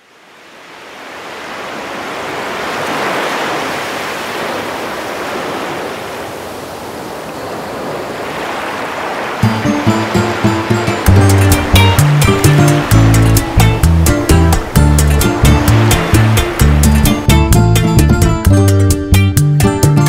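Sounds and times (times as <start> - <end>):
sea waves washing: 0.0 - 18.8
music: 9.4 - 20.0.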